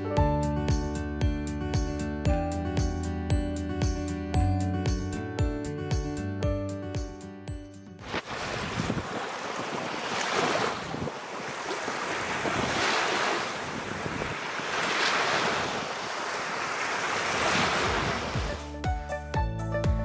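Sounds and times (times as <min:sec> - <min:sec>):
small waves washing up beach: 0:08.0 - 0:18.6.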